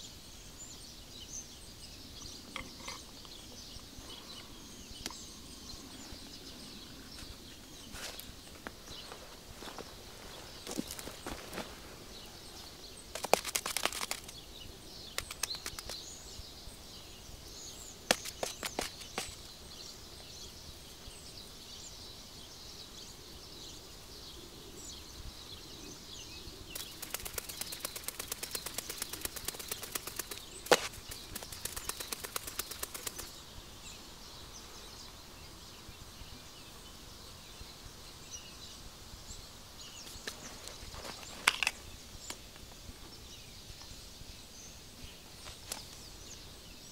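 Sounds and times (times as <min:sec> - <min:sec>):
faint birds chirping: 0:00.0 - 0:46.9
spruce shoots crackling and snapping: 0:13.1 - 0:14.4, 0:15.1 - 0:16.1.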